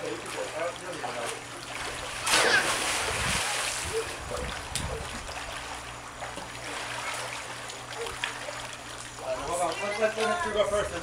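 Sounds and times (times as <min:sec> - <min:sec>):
pool water sloshing: 0:00.0 - 0:11.0
sharp splash: 0:02.2 - 0:03.8.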